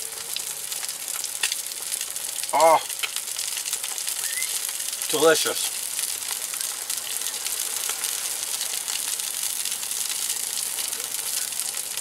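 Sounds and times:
fish frying in butter: 0:00.0 - 0:12.0.

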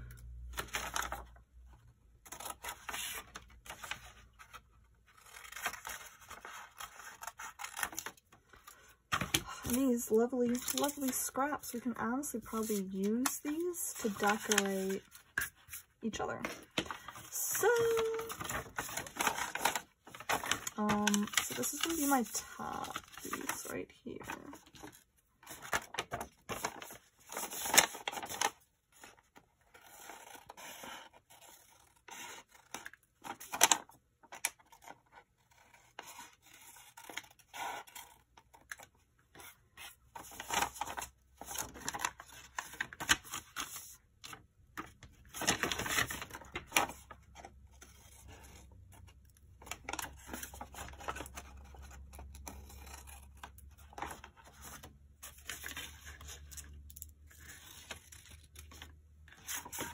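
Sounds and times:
paper rustling: 0:00.5 - 0:59.9
scissors cutting paper: 0:12.5 - 0:15.6, 0:17.6 - 0:23.7.

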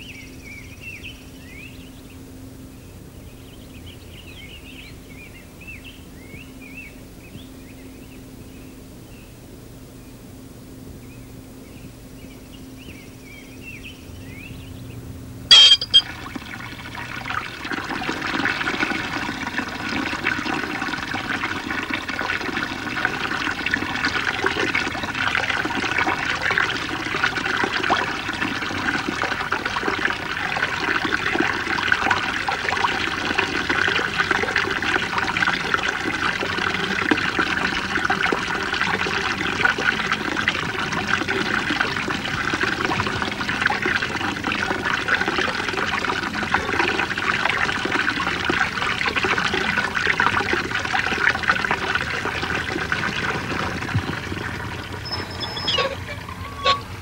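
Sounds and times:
sharp click: 0:15.5 - 0:16.0
faint high chirps: 0:15.5 - 0:16.1
running water rushing: 0:15.5 - 0:57.0.

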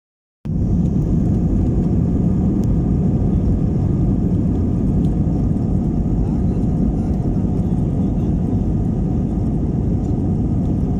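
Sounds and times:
airframe rumbling on runway: 0:00.5 - 0:10.9
jet engines droning: 0:00.5 - 0:10.9.

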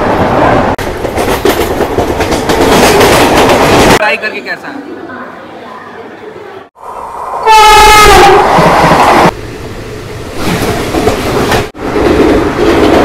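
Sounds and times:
rail clatter: 0:00.0 - 0:04.0, 0:10.3 - 0:13.0
rush of passing train: 0:00.0 - 0:05.0, 0:06.7 - 0:13.0
train horn blaring: 0:07.4 - 0:08.7.

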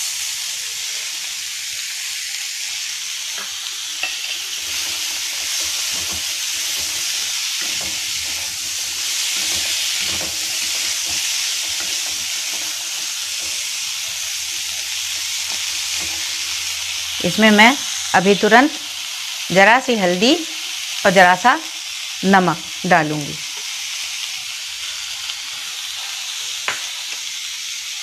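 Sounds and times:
frying hiss in a wok: 0:00.0 - 0:28.0
spatula scraping a pan: 0:03.3 - 0:17.2.

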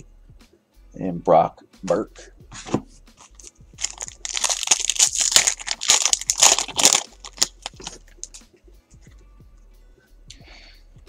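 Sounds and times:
cards rustling and clicking: 0:03.2 - 0:08.4
foil wrapper tearing and crinkling: 0:03.2 - 0:08.4.

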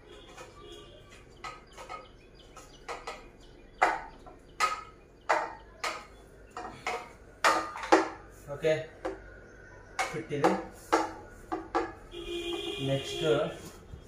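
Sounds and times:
metal tubes clinking and knocking: 0:00.0 - 0:08.3.

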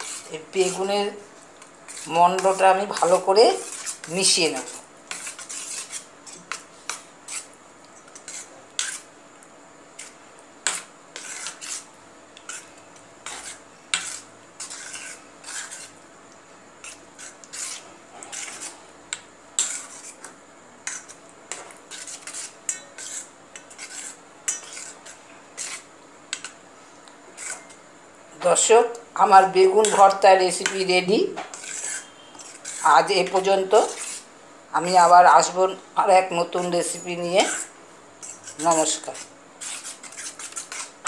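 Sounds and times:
spoon scraping metal pan: 0:00.0 - 0:01.2, 0:01.9 - 0:09.1, 0:10.0 - 0:16.0, 0:16.8 - 0:18.8, 0:19.6 - 0:26.6, 0:27.4 - 0:27.8, 0:28.6 - 0:34.3, 0:36.6 - 0:41.0
spoon stirring thick mash: 0:00.0 - 0:26.6, 0:27.3 - 0:27.8, 0:28.6 - 0:34.3, 0:36.2 - 0:41.0.

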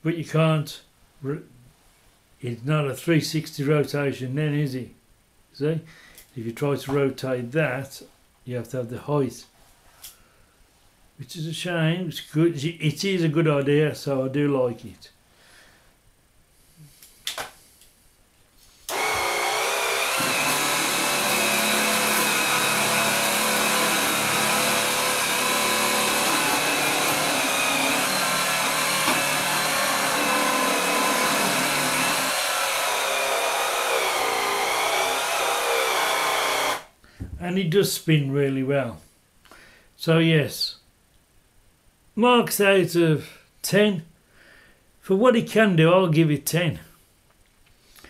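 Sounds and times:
cordless sweeper whirring: 0:18.9 - 0:36.9.

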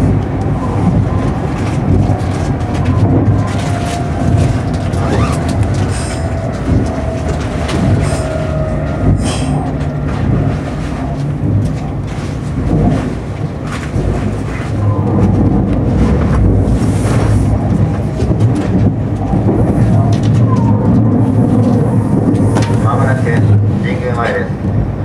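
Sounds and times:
rail-joint clicks: 0:00.0 - 0:10.2, 0:14.8 - 0:24.4
train running rumble: 0:00.0 - 0:25.0.

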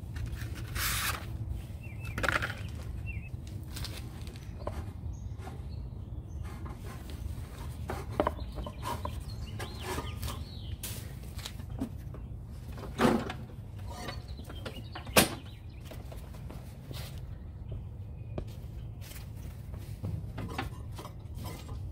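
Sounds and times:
mower clicks and scrapes on concrete: 0:00.0 - 0:01.4, 0:02.0 - 0:11.9.

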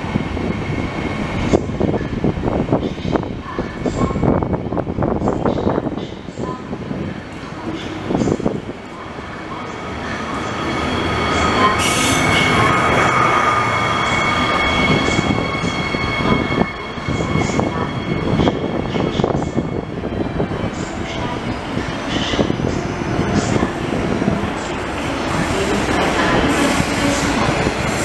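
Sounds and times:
train rolling rumble: 0:00.0 - 0:28.0
high wheel squeal: 0:10.5 - 0:28.0.

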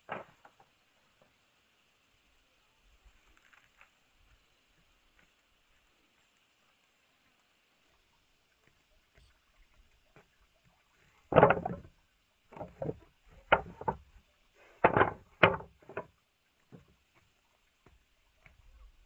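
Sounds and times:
knocks and thumps: 0:11.3 - 0:16.1.

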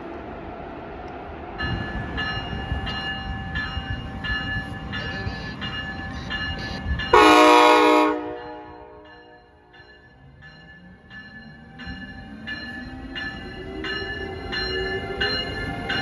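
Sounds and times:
train rumble: 0:00.0 - 0:16.0
locomotive bell ringing: 0:01.6 - 0:16.0
train horn blast: 0:07.1 - 0:09.4.

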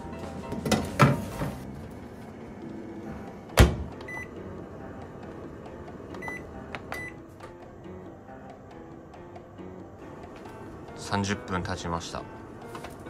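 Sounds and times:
microwave door shutting: 0:03.6 - 0:04.2.

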